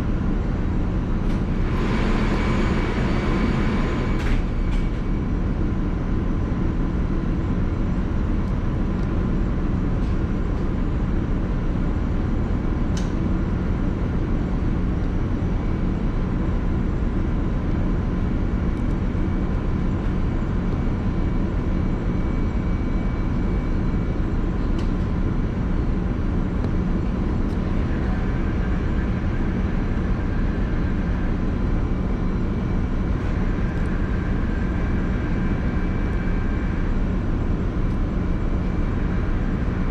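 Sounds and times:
ship machinery droning: 0.8s - 5.9s.

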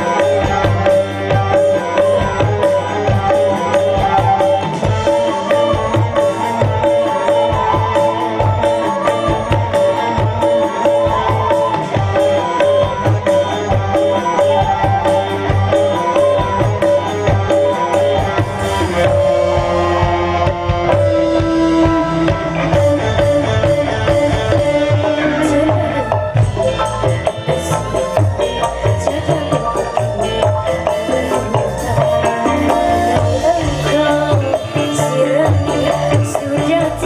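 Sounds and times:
hand drums beating: 0.0s - 37.0s
live band playing: 0.0s - 37.0s.

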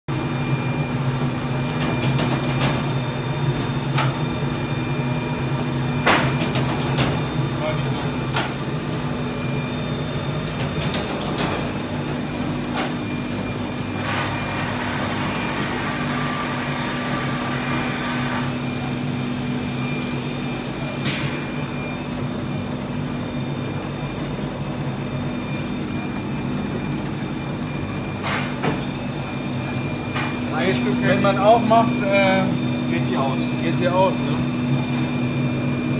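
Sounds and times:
binding machine humming: 0.1s - 35.9s.

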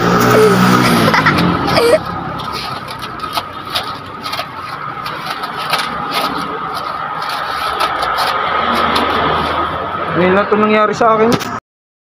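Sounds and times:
vehicle-like hum: 0.0s - 11.6s
rubber scraping and clicking on rim: 0.2s - 9.8s.

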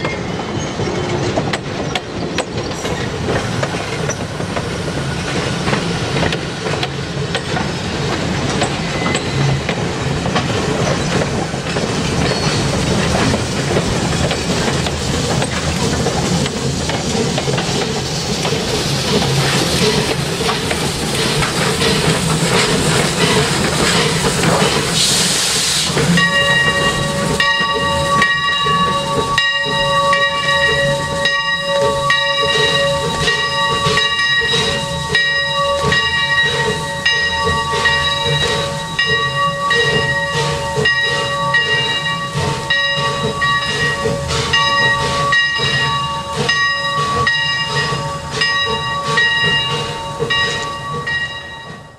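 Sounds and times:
train clickety-clack on rails: 0.0s - 51.9s
steam hiss: 11.8s - 51.0s.

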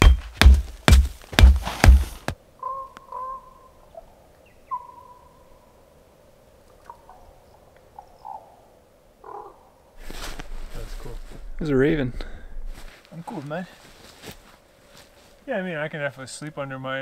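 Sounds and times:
raven calling faintly: 2.5s - 11.3s.

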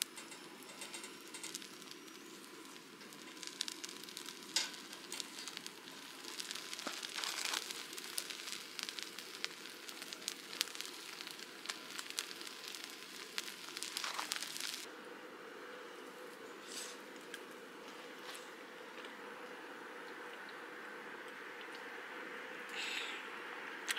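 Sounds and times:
fire crackling and popping: 0.0s - 14.9s
skewers sizzling over fire: 0.0s - 23.9s.

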